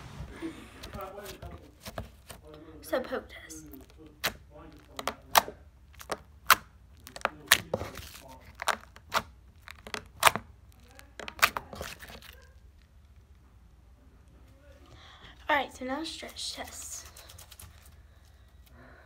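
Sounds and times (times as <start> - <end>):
slime clicking and popping: 4.1 - 12.4.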